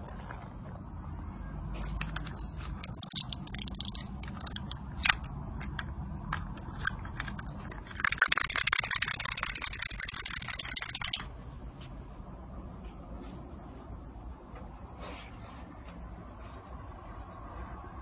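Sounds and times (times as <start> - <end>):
cat toy clicking and rattling: 1.8 - 11.2.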